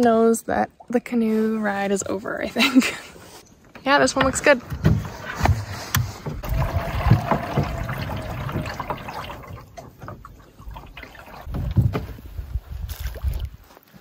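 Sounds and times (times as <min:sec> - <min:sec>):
water sloshing against hull: 0:03.5 - 0:13.6.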